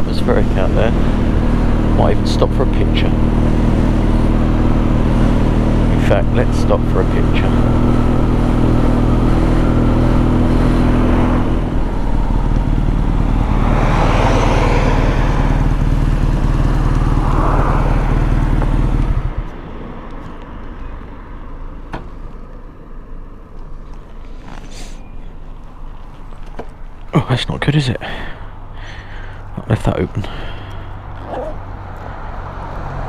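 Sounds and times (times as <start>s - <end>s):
motorcycle engine running: 0.0s - 19.6s
street sound: 0.0s - 33.0s.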